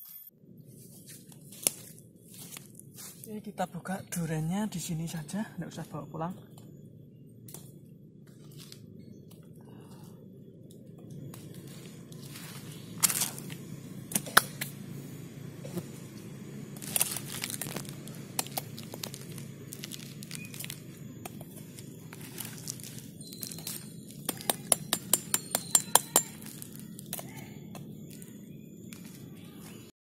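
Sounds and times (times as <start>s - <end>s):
knife crunching into spiny husk: 16.8s - 27.4s.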